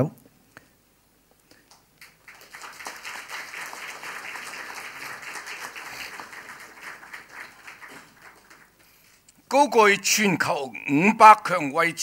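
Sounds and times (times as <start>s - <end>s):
audience applauding: 1.7s - 9.0s.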